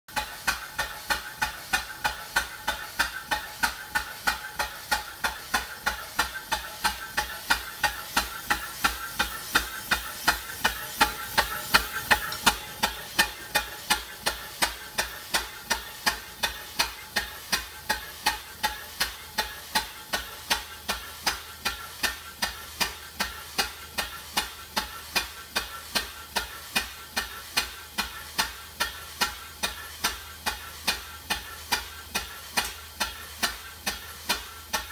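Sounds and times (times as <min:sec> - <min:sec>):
steam engine exhaust puffing: 0:00.1 - 0:34.9
steady hiss: 0:00.4 - 0:20.0.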